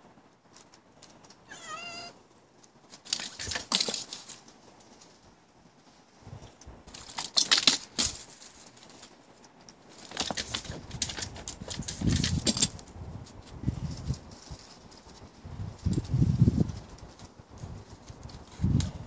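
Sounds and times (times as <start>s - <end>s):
cat meowing: 1.5s - 2.2s.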